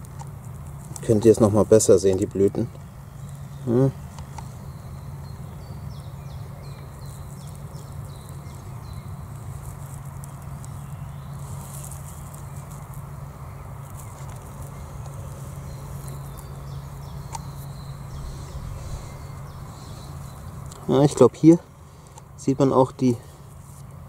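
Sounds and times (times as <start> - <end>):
steady low rumble: 11.4 - 22.1
light rustling: 13.8 - 20.9
high falling chirps: 15.4 - 20.7.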